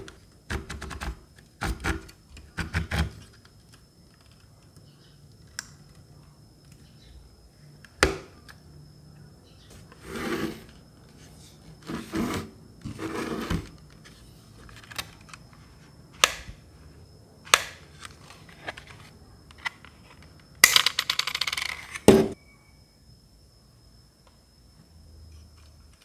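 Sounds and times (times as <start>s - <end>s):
plastic rubbing and scraping: 11.8s - 14.8s.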